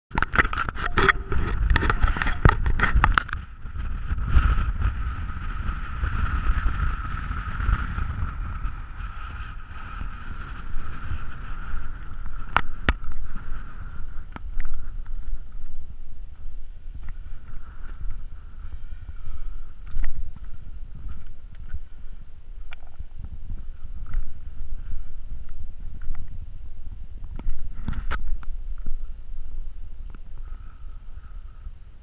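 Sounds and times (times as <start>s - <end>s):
wind buffeting microphone: 0.1s - 32.0s
faint high hum: 0.6s - 3.6s.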